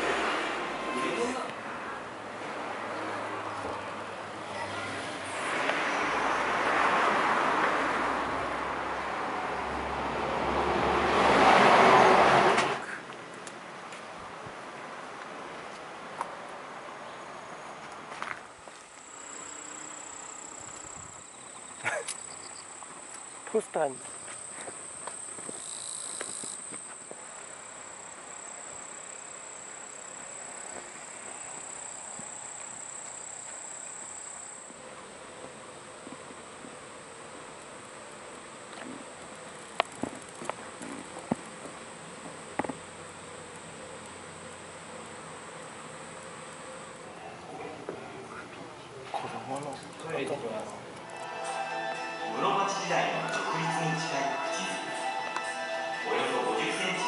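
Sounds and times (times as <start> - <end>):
vehicle passing: 0.0 - 13.0
insects droning: 18.6 - 57.0.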